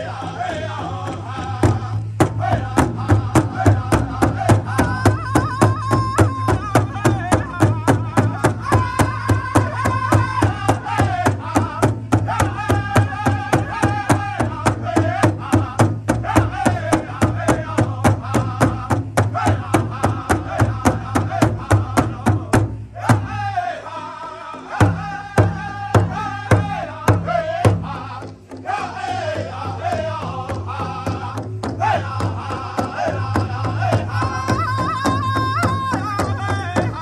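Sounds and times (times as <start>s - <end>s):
large hide drum beating: 0.0s - 23.5s, 24.8s - 37.0s
group singing in chorus: 0.0s - 37.0s.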